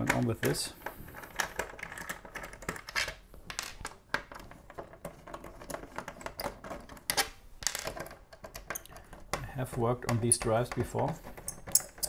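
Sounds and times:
screwdriver clicking and scraping: 0:10.4 - 0:12.0.

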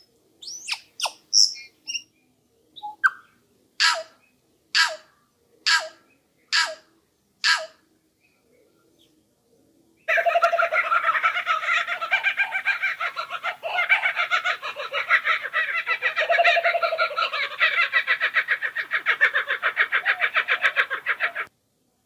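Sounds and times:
kookaburra cackling call: 0:03.8 - 0:04.2, 0:04.8 - 0:07.8, 0:10.1 - 0:21.5.

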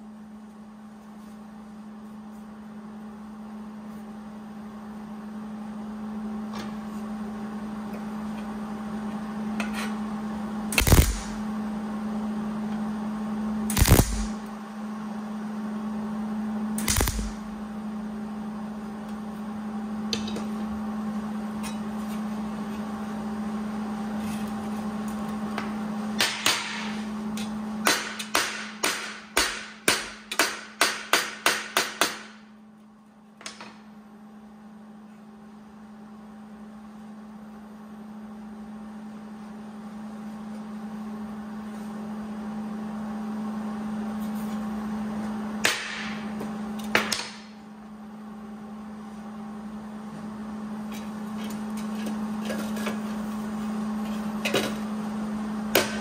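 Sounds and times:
steady hum: 0:00.0 - 0:56.0
welding crackle: 0:10.7 - 0:11.4, 0:13.7 - 0:14.5, 0:16.8 - 0:17.5.

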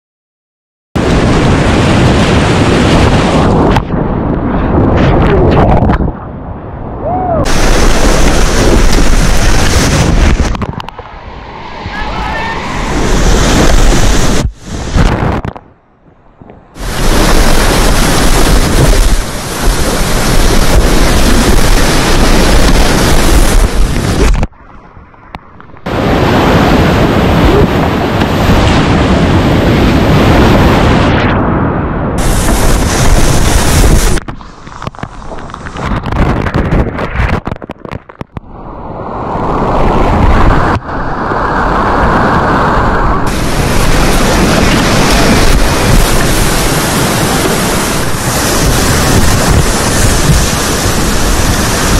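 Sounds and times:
whitewater churning and splashing: 0:07.1 - 0:15.6, 0:16.8 - 0:24.5, 0:25.8 - 0:31.0, 0:32.2 - 0:51.9.

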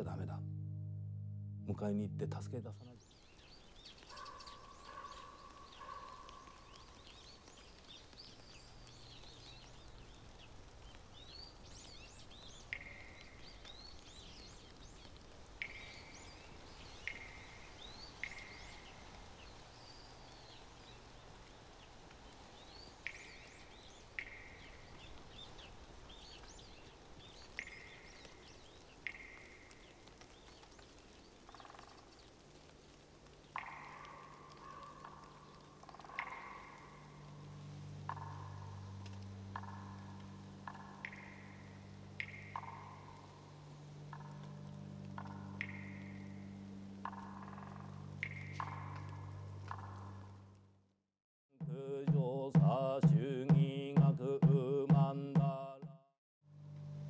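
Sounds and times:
sharp short note: 0:00.0 - 0:03.0
birds chirping: 0:01.7 - 0:50.2.

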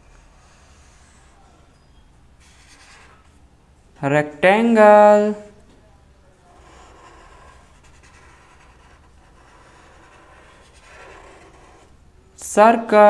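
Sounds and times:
marker scratching on paper: 0:00.1 - 0:01.4, 0:02.4 - 0:03.4, 0:06.5 - 0:12.0.

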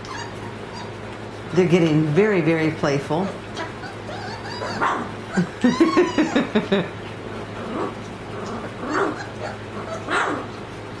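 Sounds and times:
puppies calling excitedly: 0:00.0 - 0:11.0.

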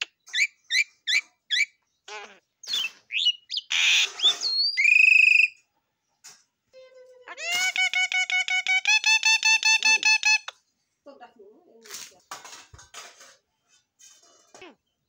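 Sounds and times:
bird chirps and whistles: 0:02.6 - 0:05.6.

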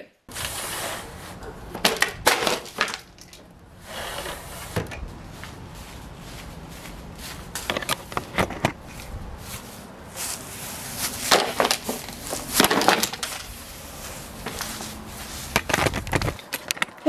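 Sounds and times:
plastic crashing onto lawn: 0:01.7 - 0:03.4, 0:11.2 - 0:13.5.

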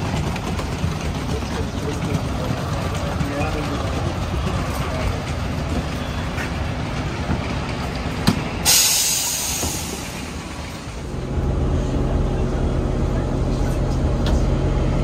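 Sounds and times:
bus engine idling: 0:00.0 - 0:15.0
compressed air hiss: 0:08.7 - 0:10.2.

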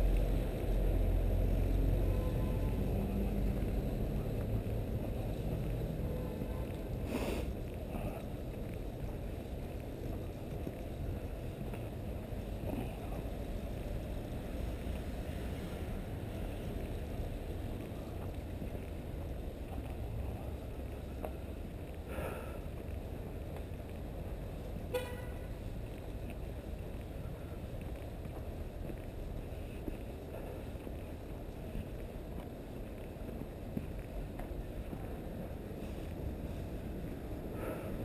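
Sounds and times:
traffic rumble: 0:00.0 - 0:38.0
car horn toot: 0:24.9 - 0:25.4.

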